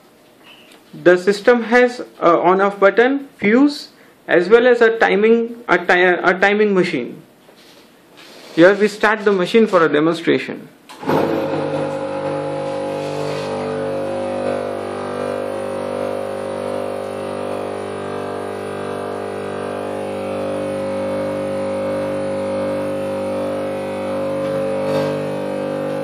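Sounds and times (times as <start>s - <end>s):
sieve shaker electrical buzzing hum: 11.0s - 26.0s.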